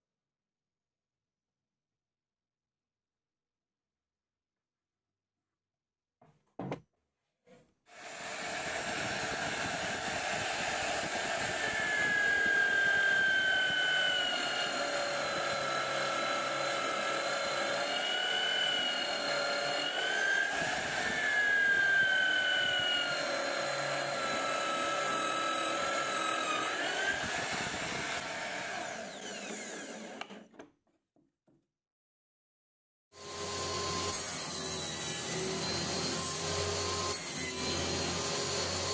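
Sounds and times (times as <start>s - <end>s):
drill press motor whining: 8.0s - 30.6s.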